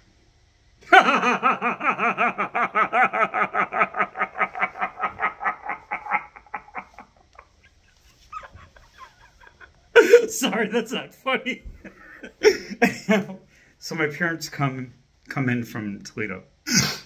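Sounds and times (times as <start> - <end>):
man laughing hard: 0.8 - 11.0, 11.6 - 13.4.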